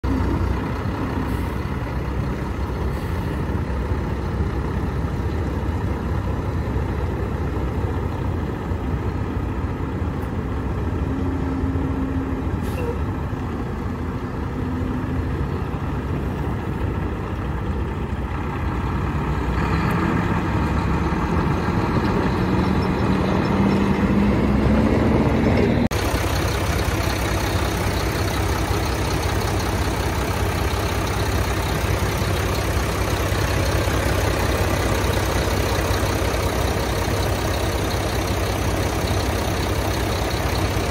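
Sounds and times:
diesel engine idling: 0:00.0 - 0:40.9.

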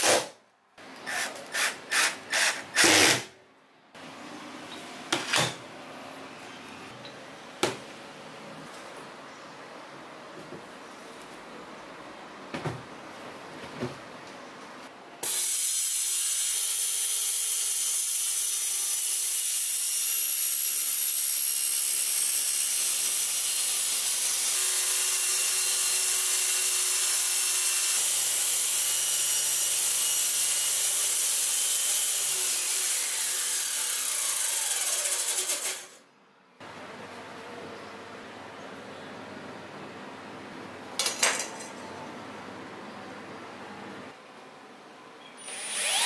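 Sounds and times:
circular saw whining: 0:45.4 - 0:46.0.

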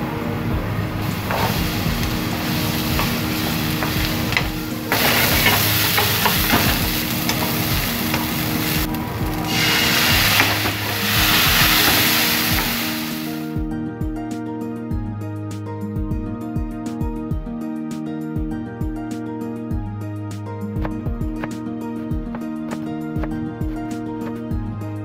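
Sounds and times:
spatula scraping and tapping pan: 0:01.0 - 0:12.8
food sizzling in oil: 0:01.0 - 0:13.5.

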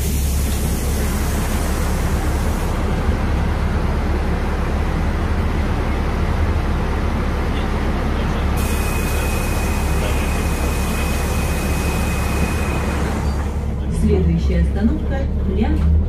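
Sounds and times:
bus cabin hum and road rumble: 0:00.0 - 0:16.0.

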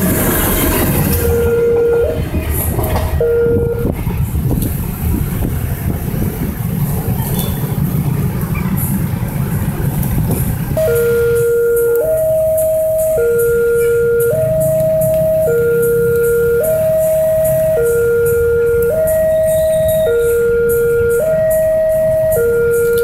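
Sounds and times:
crossing warning signal tones: 0:00.0 - 0:04.0, 0:10.8 - 0:23.0
motorbike and car traffic: 0:00.0 - 0:23.0
train rumbling past: 0:00.0 - 0:23.0.

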